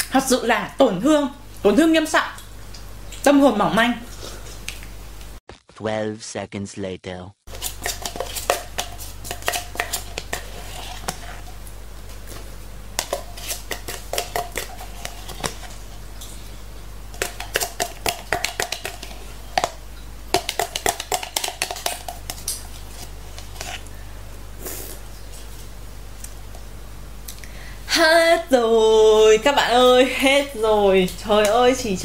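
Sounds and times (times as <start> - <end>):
plastic spoon scraping a cup: 7.5 - 11.5, 13.0 - 15.7, 21.5 - 23.8.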